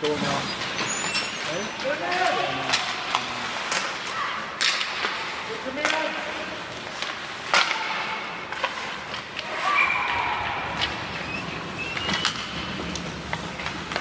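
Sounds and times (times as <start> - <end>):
hockey sticks and puck clacking: 0.0 - 14.0
skates scraping on ice: 0.0 - 14.0
players shouting: 9.4 - 11.3.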